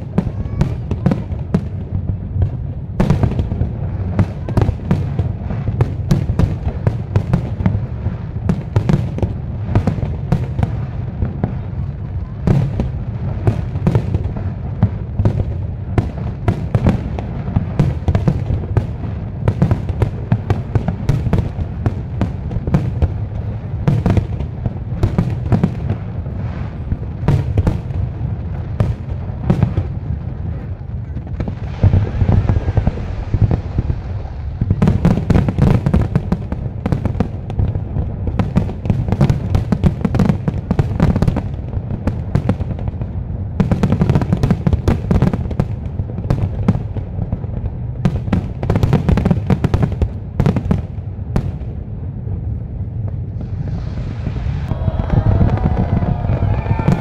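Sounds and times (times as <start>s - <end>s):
fireworks hissing: 0.0s - 39.5s, 53.1s - 57.0s
fireworks booming: 0.0s - 57.0s.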